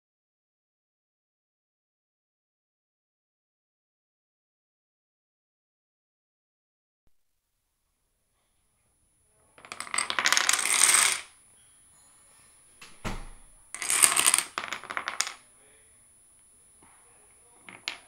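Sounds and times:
dominoes and blocks clattering: 9.6 - 11.4, 13.8 - 15.4, 17.6 - 18.0
thump: 12.8 - 13.4.

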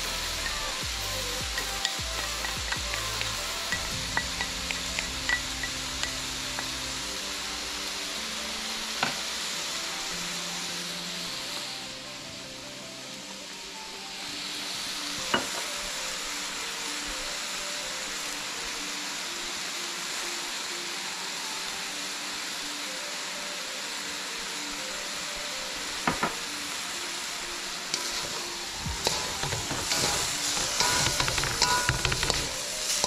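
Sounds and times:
food sizzling in a wok: 0.0 - 33.0
wooden spatulas clattering in wok: 29.0 - 32.6.

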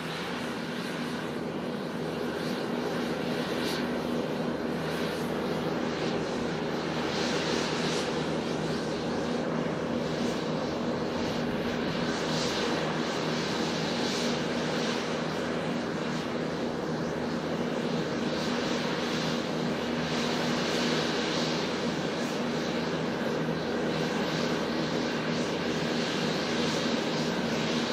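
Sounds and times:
jet engines droning: 0.0 - 27.9.

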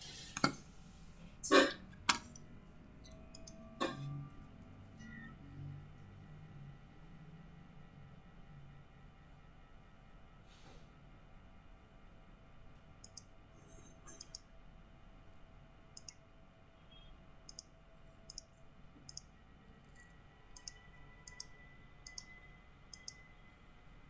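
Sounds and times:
faint steady hum: 0.1 - 24.0
computer mouse button clicks: 3.4 - 3.6, 22.9 - 23.2.

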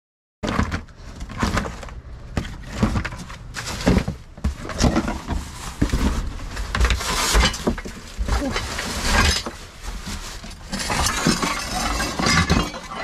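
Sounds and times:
cardboard rustling: 0.4 - 13.0
broken glass shards clattering: 10.7 - 13.0.

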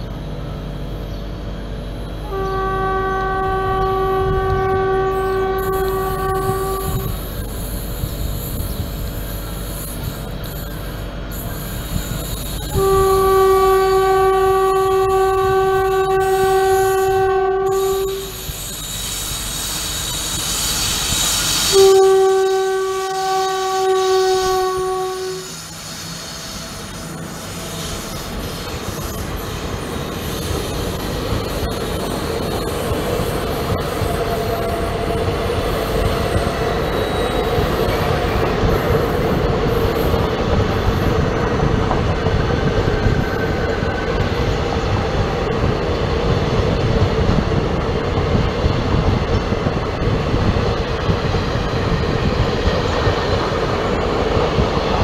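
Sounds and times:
train rumble and wheel clatter: 0.0 - 55.0
train horn blasts: 2.2 - 7.2, 12.6 - 18.5, 21.7 - 25.7.

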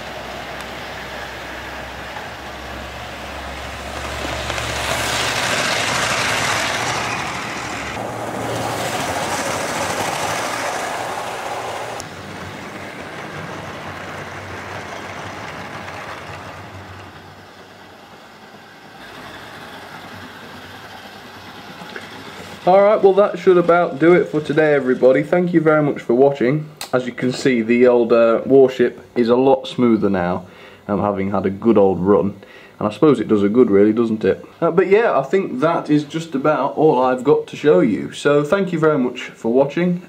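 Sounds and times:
model train motor hum: 0.0 - 26.2
wheels rumbling on rails: 0.0 - 26.4.

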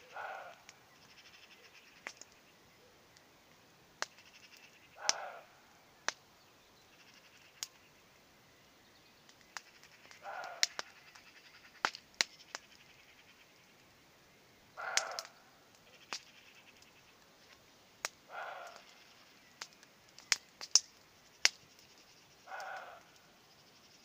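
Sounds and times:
distant deer barking: 0.0 - 3.1, 4.0 - 6.2, 9.6 - 13.7, 14.7 - 17.2, 18.0 - 20.8, 21.4 - 23.8
campfire crackling: 0.0 - 24.0.

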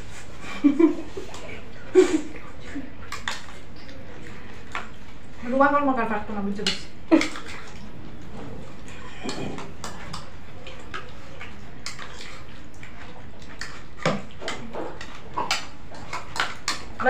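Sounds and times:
spoons tapping and scraping bowls: 6.2 - 7.8, 8.7 - 17.0.

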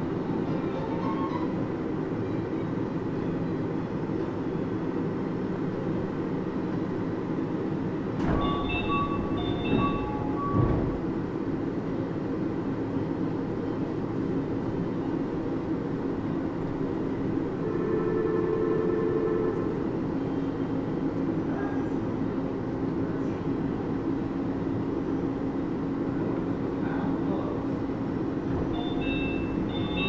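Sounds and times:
monorail car rumbling: 0.0 - 30.0
high beeping tones: 28.8 - 30.0.

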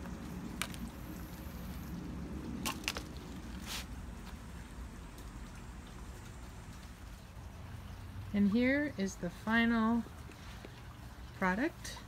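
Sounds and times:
soil crackling and rustling: 0.0 - 7.5
low background rumble: 0.0 - 12.0.

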